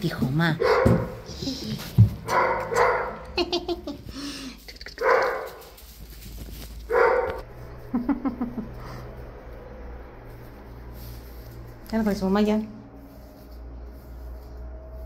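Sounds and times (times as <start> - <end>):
dog barking: 0.6 - 1.3, 2.2 - 3.2, 5.0 - 5.6, 6.9 - 7.5.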